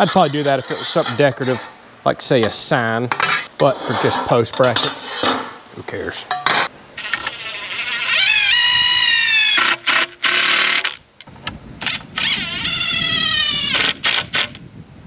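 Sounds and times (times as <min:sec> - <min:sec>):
sharp metal clanks: 0:04.5 - 0:05.6, 0:06.3 - 0:06.7.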